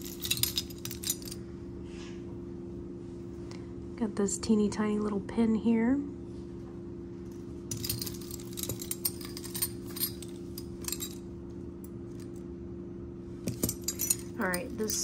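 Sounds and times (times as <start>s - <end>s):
metal jewelry clinking and jangling: 0.0s - 1.4s, 7.7s - 11.3s, 13.5s - 15.0s
steady low hum: 0.0s - 15.0s.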